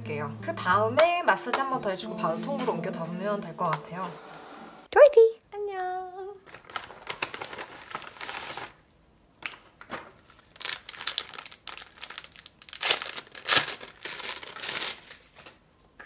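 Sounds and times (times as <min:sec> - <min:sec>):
paper and plastic crinkling: 0:06.4 - 0:15.7.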